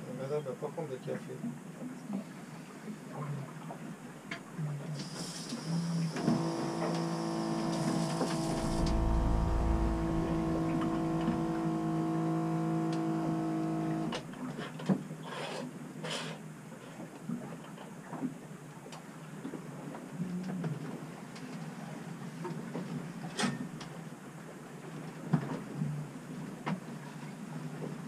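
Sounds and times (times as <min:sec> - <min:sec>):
electric pump humming: 0:06.3 - 0:14.2.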